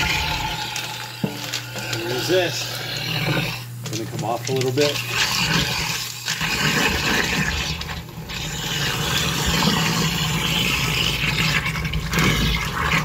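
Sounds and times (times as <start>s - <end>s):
garbage disposal grinding ice: 0.0s - 13.0s
water stream pouring: 4.8s - 13.0s.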